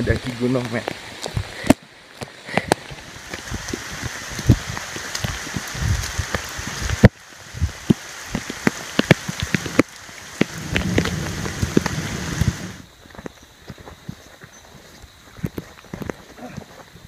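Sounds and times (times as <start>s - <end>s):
heavy rain falling: 0.0s - 12.9s
raindrops tapping near microphone: 0.0s - 14.2s.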